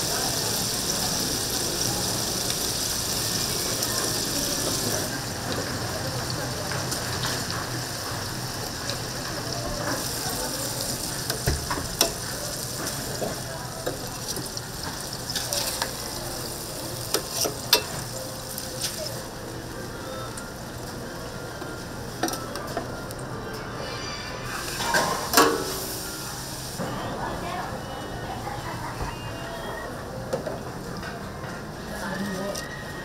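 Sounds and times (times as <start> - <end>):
meat patties sizzling on griddle: 0.0 - 20.0.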